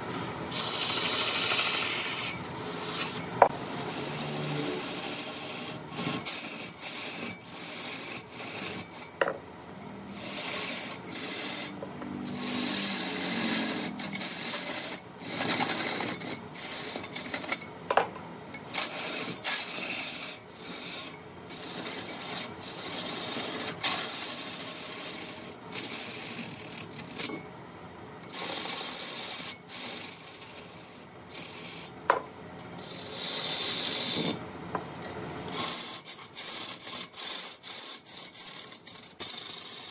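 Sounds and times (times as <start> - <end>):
wood lathe cutting wood: 0.5 - 9.4, 10.1 - 17.0.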